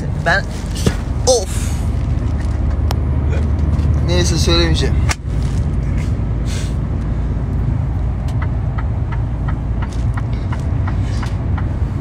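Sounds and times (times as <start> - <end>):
road noise: 0.0 - 12.0
truck engine drone: 0.0 - 12.0
short air hiss: 6.4 - 6.8
turn signal relay ticking: 7.9 - 12.0.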